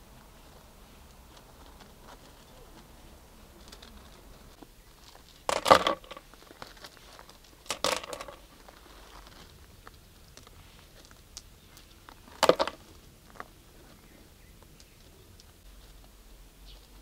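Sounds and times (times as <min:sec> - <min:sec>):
gravel crunching and rattling: 0:00.0 - 0:17.0
stones clicking: 0:05.1 - 0:13.5.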